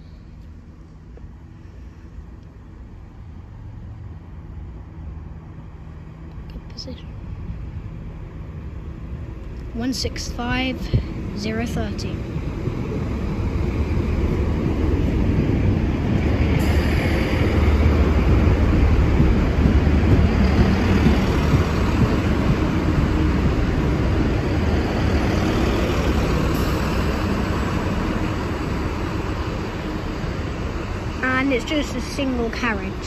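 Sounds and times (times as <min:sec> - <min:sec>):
diesel train rumbling: 0:00.0 - 0:33.0
steel wheels on rail: 0:09.2 - 0:33.0.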